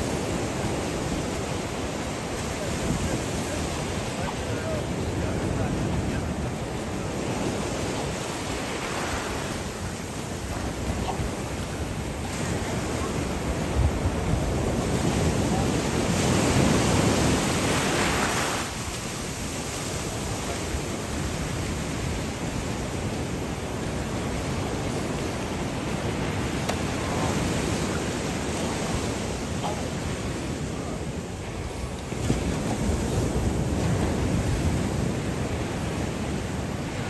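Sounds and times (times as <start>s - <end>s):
ocean surf washing up beach: 0.0s - 37.0s
wind on microphone: 0.0s - 37.0s.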